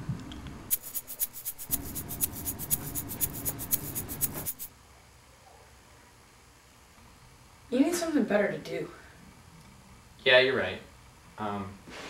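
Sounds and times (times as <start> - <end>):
wristwatch ticking: 0.7 - 4.7.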